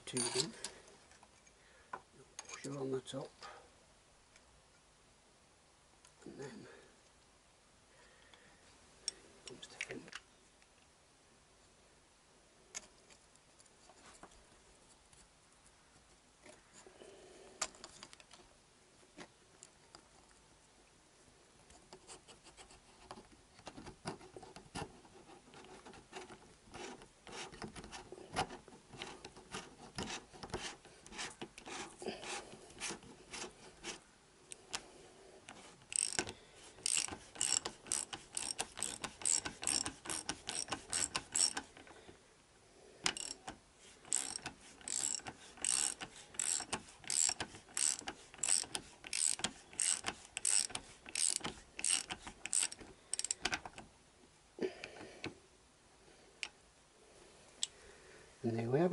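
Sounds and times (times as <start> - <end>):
hand ratchet clicking: 35.8 - 41.9, 43.0 - 53.8.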